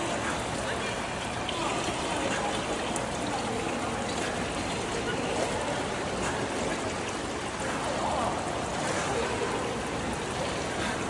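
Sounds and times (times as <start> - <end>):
pool water churning and lapping: 0.0 - 11.0.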